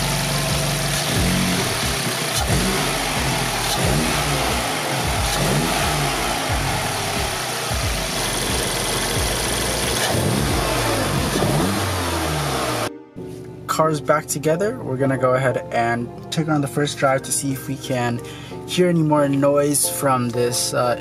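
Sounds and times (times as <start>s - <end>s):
car engine revving in throttle blips: 0.0s - 12.9s.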